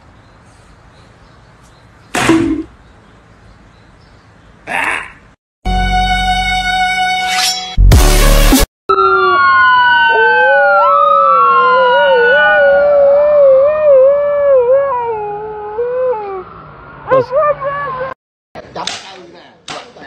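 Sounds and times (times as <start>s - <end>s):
emergency siren wailing: 8.9s - 18.1s
dog howling: 10.0s - 16.5s.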